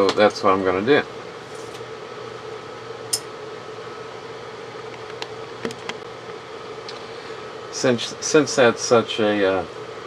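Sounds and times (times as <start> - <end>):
room hum and hiss: 0.0 - 10.0.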